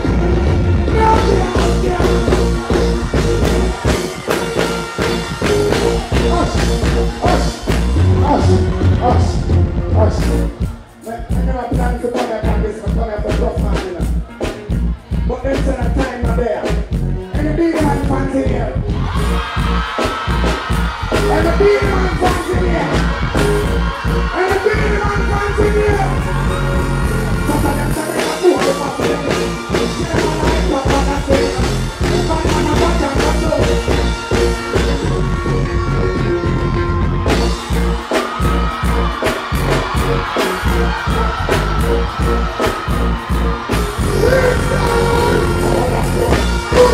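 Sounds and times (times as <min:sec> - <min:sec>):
heavy bass beat: 0:00.0 - 0:46.9
loud dancehall music: 0:00.0 - 0:46.9
person singing into microphone: 0:27.3 - 0:33.8, 0:44.0 - 0:46.9.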